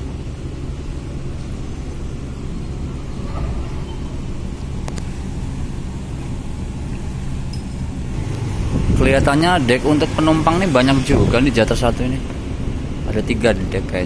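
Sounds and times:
diesel engine rumble: 0.0s - 14.0s.

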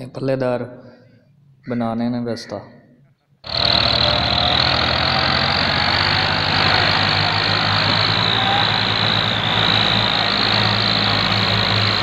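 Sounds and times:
diesel tractor engine under load: 3.4s - 12.0s.

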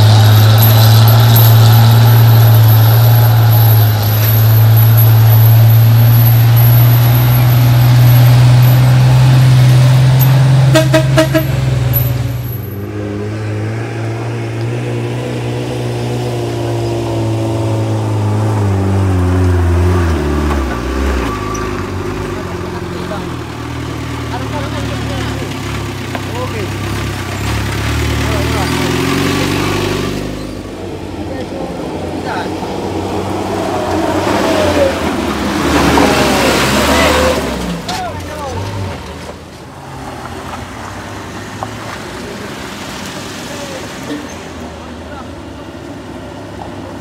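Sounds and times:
truck horn toots: 0.0s - 12.2s
diesel truck engine: 0.0s - 47.0s.

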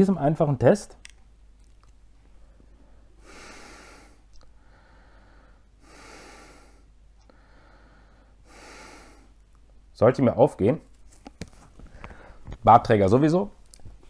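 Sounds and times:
soft breathing through mask: 2.3s - 9.4s, 11.8s - 12.5s.

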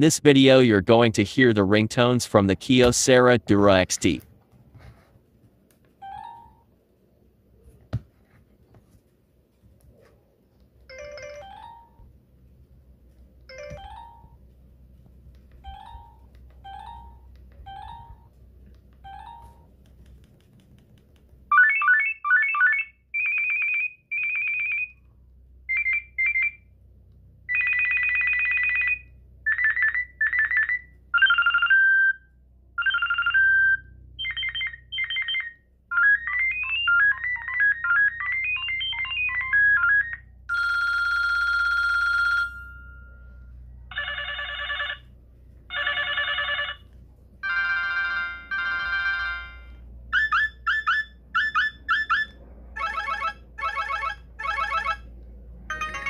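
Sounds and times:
melodic ringtone run: 6.0s - 6.7s, 10.9s - 12.1s, 13.5s - 14.4s, 15.6s - 18.3s, 19.1s - 19.7s, 27.5s - 32.2s, 32.8s - 45.0s, 45.7s - 46.8s, 47.4s - 55.0s, 55.7s - 56.0s
phone ringtone beeps and trills: 6.0s - 6.7s, 10.9s - 12.1s, 13.5s - 14.4s, 15.6s - 18.3s, 19.1s - 19.7s, 21.5s - 25.0s, 27.5s - 45.0s, 45.7s - 46.8s, 47.4s - 55.1s, 55.7s - 56.0s
held electronic tone: 55.7s - 56.0s.

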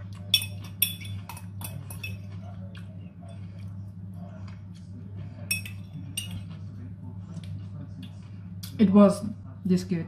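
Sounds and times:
steady low hum: 0.0s - 10.0s
fork clinking on glass dish: 0.2s - 2.4s, 5.5s - 6.6s.

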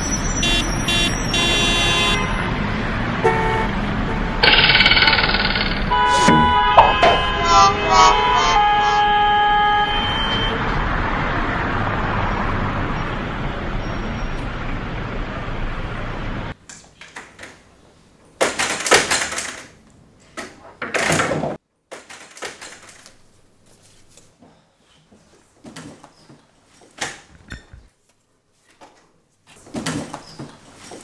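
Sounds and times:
rushing street noise: 0.0s - 16.6s
glass door opening and closing: 18.4s - 23.0s.

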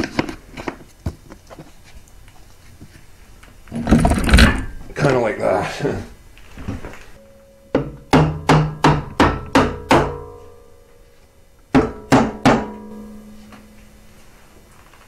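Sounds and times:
metallic knocks: 7.3s - 10.7s, 11.7s - 13.8s.

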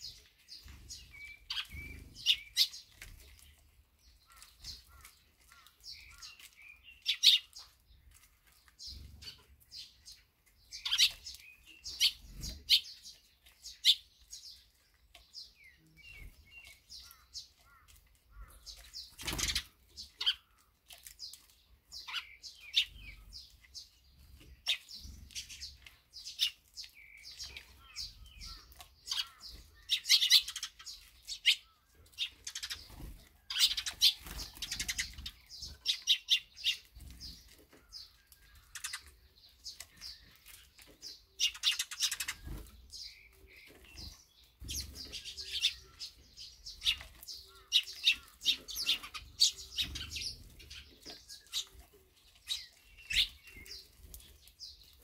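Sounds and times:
sparrows chirping: 0.0s - 55.0s
wings fluttering: 18.6s - 20.4s, 32.2s - 36.0s, 39.7s - 45.7s.

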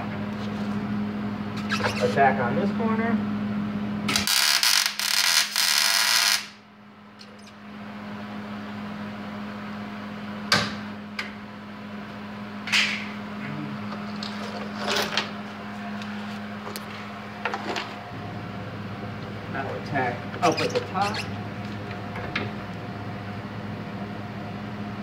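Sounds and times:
steady hum: 0.0s - 25.0s
welding arc crackling: 4.1s - 6.6s.

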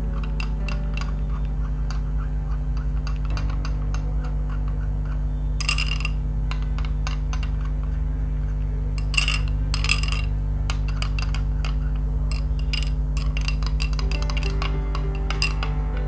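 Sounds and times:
steady low hum: 0.0s - 16.0s
metal spoon clinking in glass bowl: 5.6s - 6.2s, 10.9s - 16.0s.

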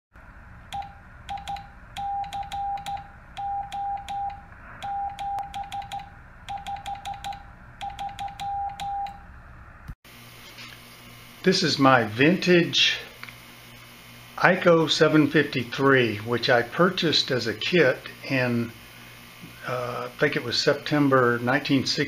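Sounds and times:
morse code beeps: 0.8s - 9.2s.

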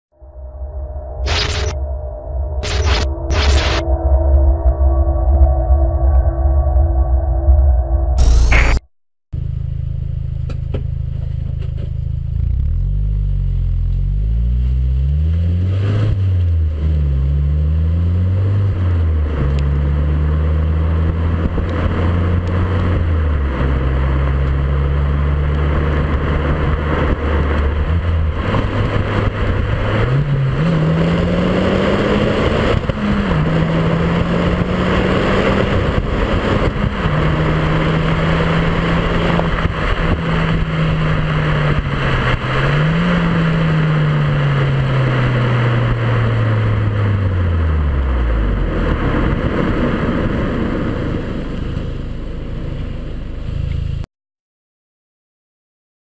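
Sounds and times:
car exhaust: 9.4s - 54.0s
road and wind noise: 9.4s - 54.1s.

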